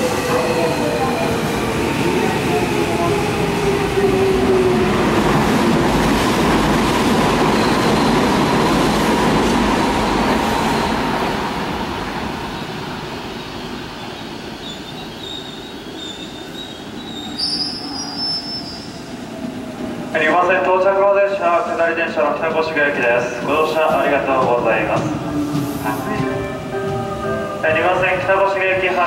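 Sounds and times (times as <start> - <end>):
electric train pulling in: 0.0 - 29.0
high squeal: 14.6 - 19.1.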